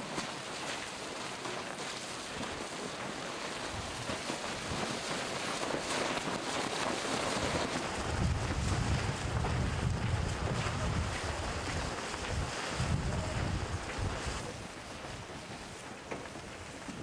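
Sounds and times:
wind blowing over microphone: 7.9 - 15.3.

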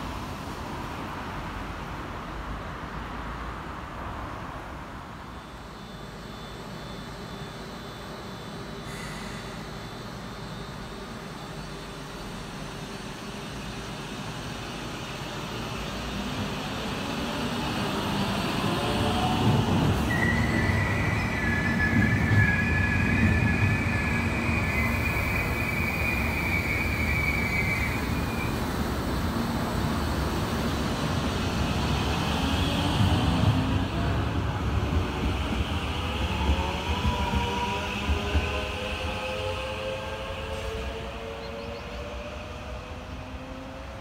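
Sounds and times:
electric train rumble: 3.8 - 44.0
high wheel squeal: 20.0 - 28.6.

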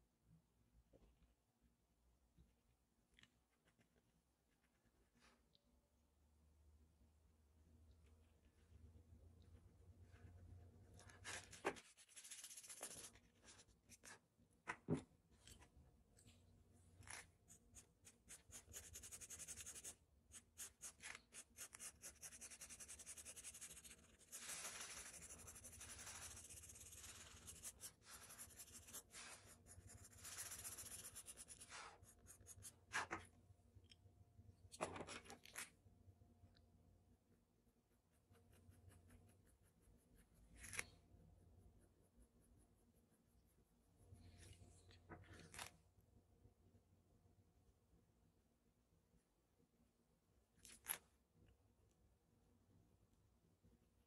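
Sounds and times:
pencil scratching on paper: 11.0 - 14.2, 17.1 - 33.1.

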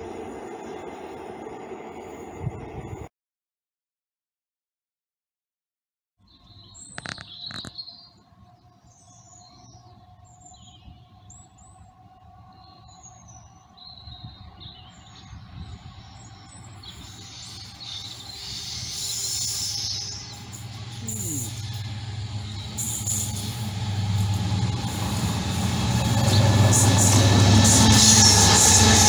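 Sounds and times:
birds chirping: 6.3 - 11.9, 12.5 - 28.5
diesel locomotive rumble: 14.6 - 29.0.

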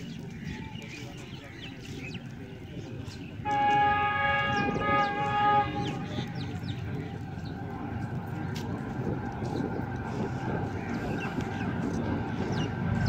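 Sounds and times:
train horn chord: 3.4 - 6.7.

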